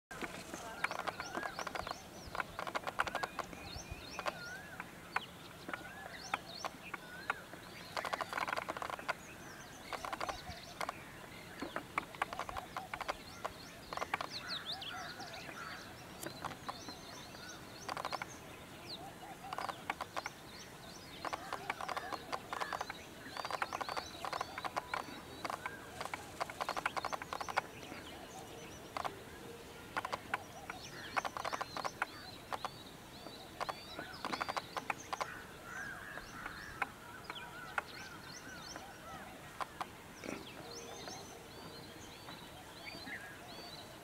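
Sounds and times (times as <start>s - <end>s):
peacock quills rattling: 0.1s - 4.8s, 5.8s - 14.4s, 17.8s - 18.4s, 19.4s - 20.4s, 21.1s - 28.0s, 29.9s - 32.8s, 33.4s - 37.6s
small birds chirping: 0.1s - 44.0s.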